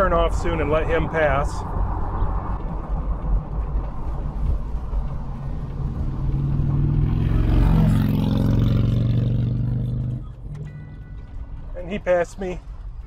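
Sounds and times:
wind and road noise in car: 0.0s - 13.0s
motorcycle engine overtaking: 4.2s - 11.0s.

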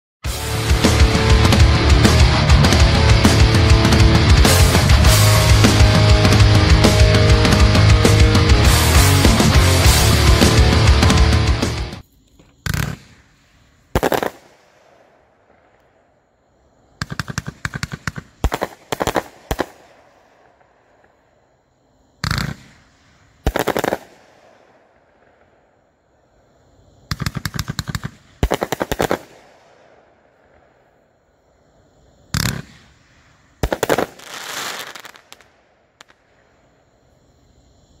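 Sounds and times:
fireworks shots and rapid cracks: 0.2s - 16.0s, 16.9s - 21.2s, 22.2s - 25.7s, 27.0s - 31.0s, 32.2s - 36.7s
small firework pops: 12.3s - 15.0s, 17.0s - 20.0s, 22.2s - 24.7s, 27.1s - 29.8s, 32.3s - 36.4s
firework bangs: 12.6s - 15.2s, 22.2s - 24.7s, 27.1s - 29.8s, 32.3s - 36.3s
firework burst hissing: 32.3s - 36.1s.

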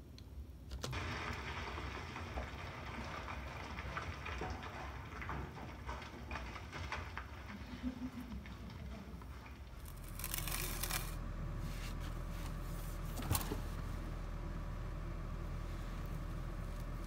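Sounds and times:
stone cracking: 9.8s - 11.2s
low hum: 9.8s - 17.0s.

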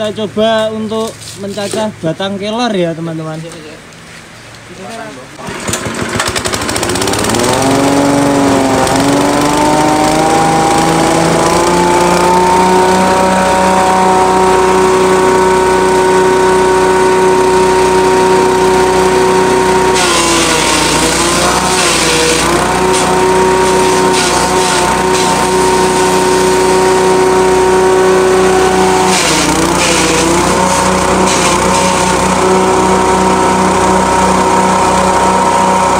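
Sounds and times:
grass chopper engine whirring: 5.4s - 35.9s
stems being chopped: 29.0s - 30.6s.

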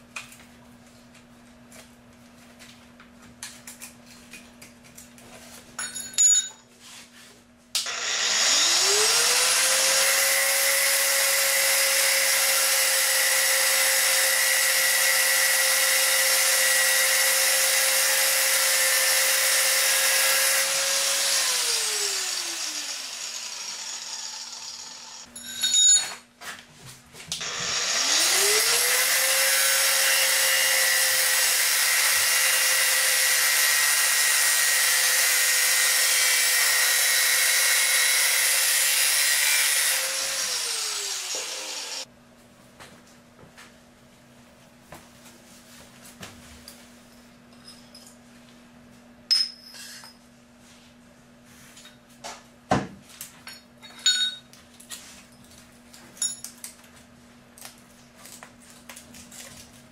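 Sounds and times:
angle grinder cutting metal pipe: 7.8s - 25.3s, 27.4s - 42.1s.

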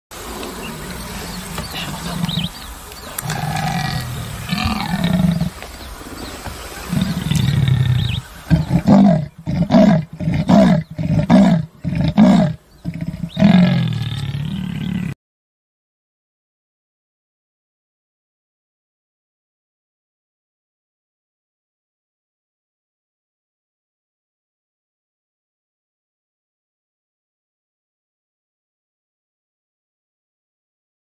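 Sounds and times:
big cat growling: 0.2s - 2.6s, 3.2s - 5.6s, 6.8s - 15.2s
big cat grunting: 0.3s - 2.6s, 3.2s - 5.6s, 6.8s - 15.2s.

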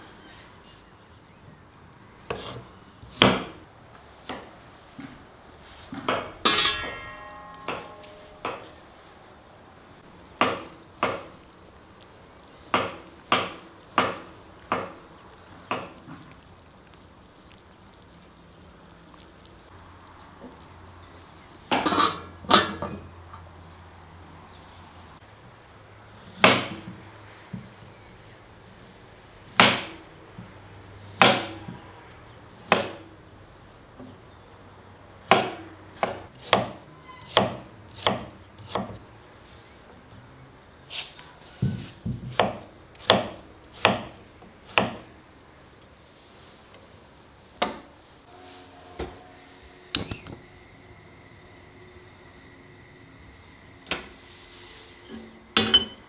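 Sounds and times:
pots lids and knives clattering: 6.0s - 8.8s, 21.7s - 23.1s, 55.1s - 56.0s.

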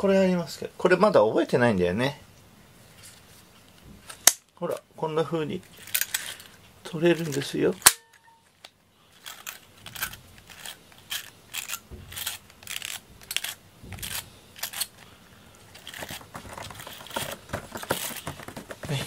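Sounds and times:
cat scratching cardboard: 15.8s - 19.0s.

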